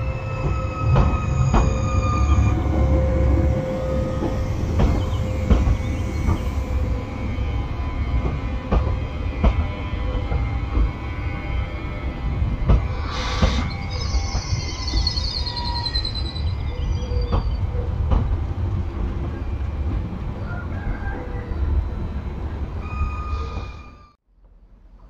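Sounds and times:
wheels squealing: 0:00.0 - 0:07.1, 0:12.9 - 0:18.0, 0:22.8 - 0:24.2
train rumbling: 0:00.0 - 0:25.0
sharp clicks of train: 0:12.6 - 0:15.1, 0:17.3 - 0:18.4.

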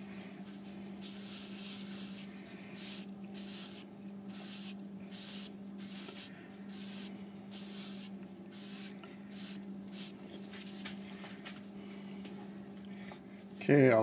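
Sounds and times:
steady low hum: 0:00.0 - 0:14.0
cloth pad wiping wood: 0:01.0 - 0:03.8, 0:04.4 - 0:10.1.

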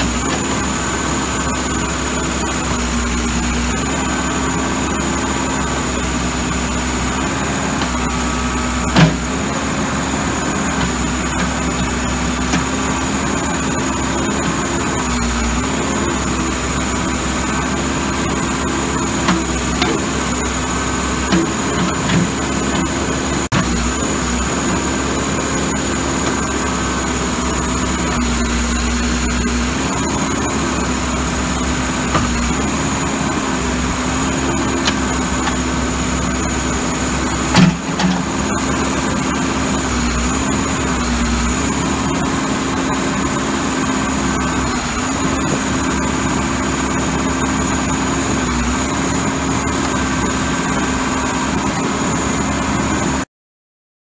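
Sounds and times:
backhoe diesel engine running: 0:00.0 - 0:53.3
loud clunk: 0:37.5 - 0:38.3.

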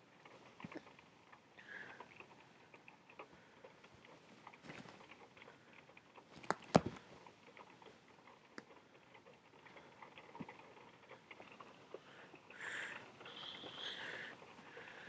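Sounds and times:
sharp clicks: 0:04.0 - 0:07.8
cat pawing at a watch: 0:06.3 - 0:07.0.

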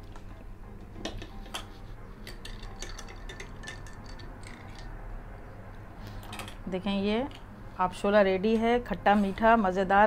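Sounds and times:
spoon clinking in iced drink glass: 0:02.3 - 0:04.9.

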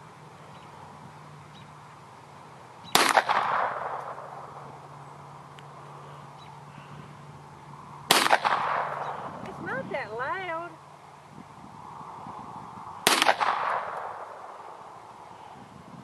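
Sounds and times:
pistol shots with echo: 0:03.0 - 0:04.5, 0:08.1 - 0:09.2, 0:13.0 - 0:14.5.

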